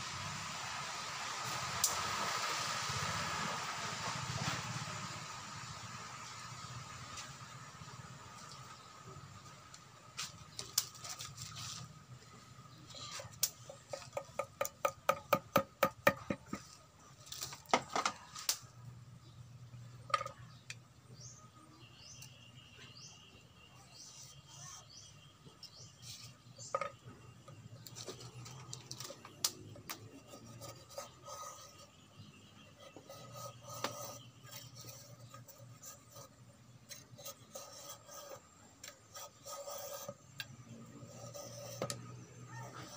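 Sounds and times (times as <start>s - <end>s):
bamboo tubes clicking and tapping: 9.7s - 11.6s, 13.3s - 18.7s, 26.6s - 30.5s, 40.0s - 40.6s, 41.8s - 42.2s.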